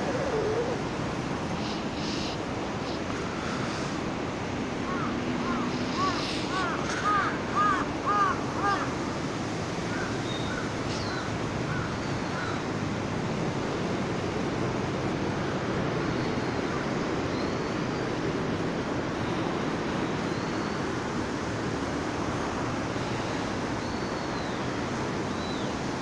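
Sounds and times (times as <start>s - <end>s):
crow cawing: 4.9s - 8.9s, 9.9s - 12.6s.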